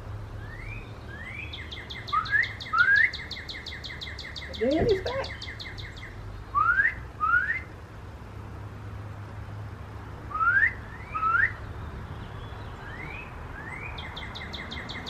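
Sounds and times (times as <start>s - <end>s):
songbird whistling: 0.4s - 7.7s, 10.3s - 11.6s, 12.8s - 15.0s.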